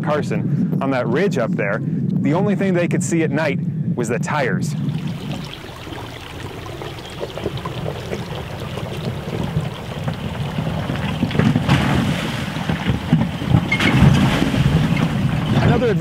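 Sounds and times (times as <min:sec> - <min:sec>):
tyres rumbling on rock: 0:04.8 - 0:16.0
stones knocking: 0:05.0 - 0:15.8.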